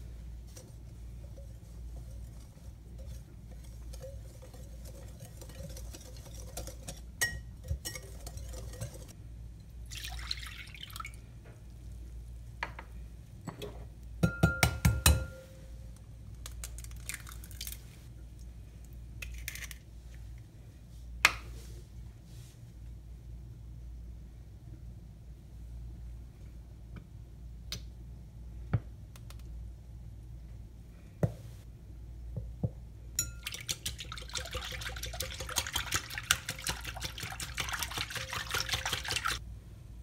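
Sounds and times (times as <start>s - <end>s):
whisk stirring in glass bowl: 0.0s - 9.2s, 33.2s - 39.4s
milk pouring: 9.8s - 11.2s, 33.4s - 39.4s.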